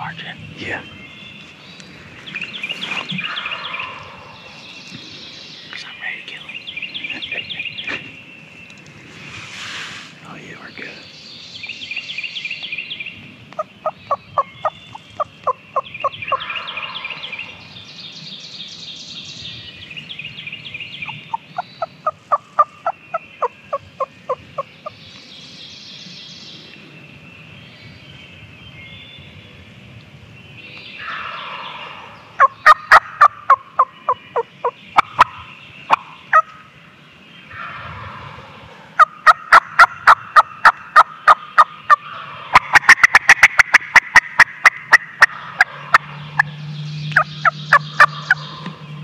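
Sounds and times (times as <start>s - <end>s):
songbirds singing: 0.0s - 49.0s
turkey calling: 31.0s - 36.7s, 37.5s - 49.0s.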